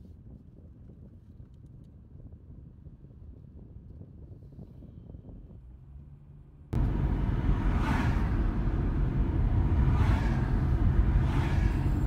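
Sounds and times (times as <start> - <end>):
car road and engine rumble: 4.4 - 12.0
passing vehicles swishing: 5.9 - 12.0.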